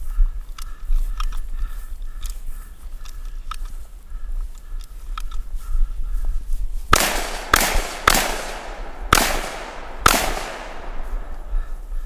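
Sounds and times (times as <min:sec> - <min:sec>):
gunshots with echo: 0:06.9 - 0:11.8.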